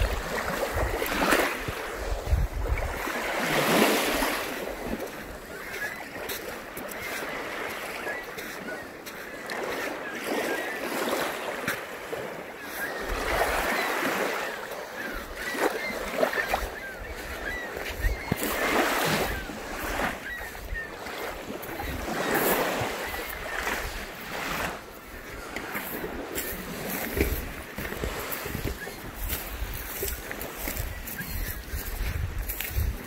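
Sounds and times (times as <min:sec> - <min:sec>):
wind buffeting microphone: 0:00.0 - 0:03.1, 0:27.1 - 0:33.0
small waves lapping on shore: 0:00.0 - 0:33.0.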